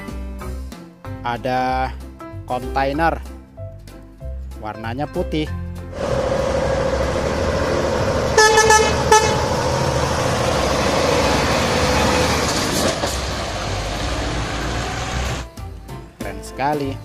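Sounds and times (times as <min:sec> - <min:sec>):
trucks driving past: 0:05.9 - 0:16.2
truck horn blasts: 0:06.0 - 0:12.4.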